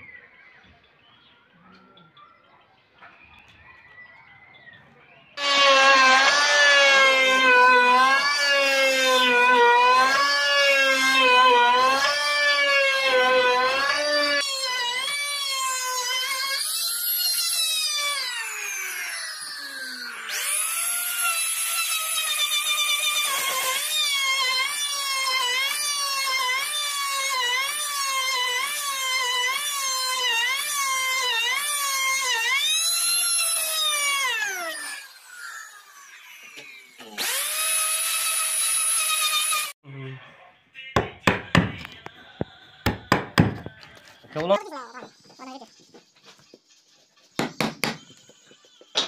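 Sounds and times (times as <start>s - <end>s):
router motor whine: 5.4s - 39.8s.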